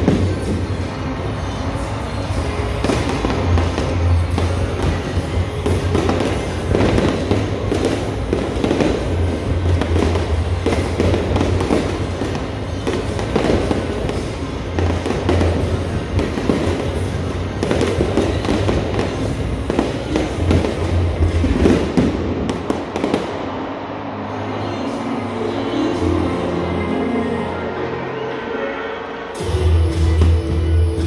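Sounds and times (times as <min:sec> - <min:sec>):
fireworks bangs and crackles: 0:00.0 - 0:23.6
music playing: 0:00.0 - 0:31.0.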